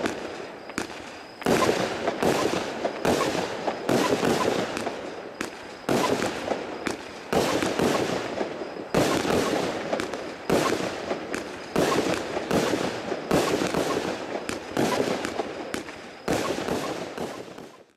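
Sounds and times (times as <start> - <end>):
firework battery bangs and crackling: 0.0 - 17.9.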